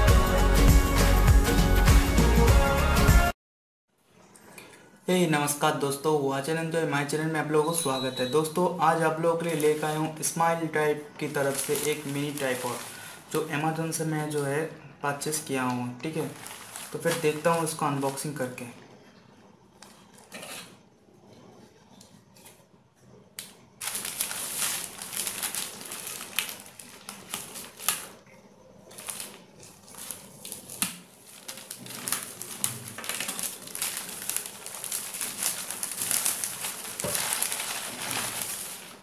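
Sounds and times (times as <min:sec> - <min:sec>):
bubble wrap crinkling and crackling: 0:08.8 - 0:13.5, 0:16.0 - 0:18.4, 0:23.8 - 0:39.0
plastic mailer being torn open: 0:11.2 - 0:13.1, 0:16.1 - 0:18.2, 0:23.8 - 0:28.2, 0:28.9 - 0:39.0.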